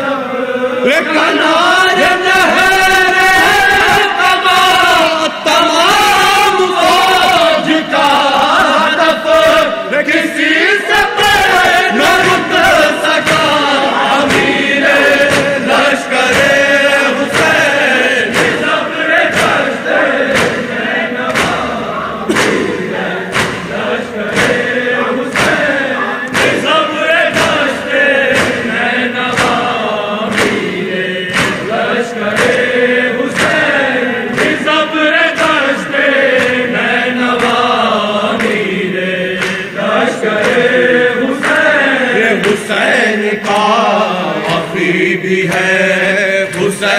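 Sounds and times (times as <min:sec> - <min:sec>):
men chanting in unison: 0:00.0 - 0:46.9
chest-beating thumps: 0:14.2 - 0:34.8.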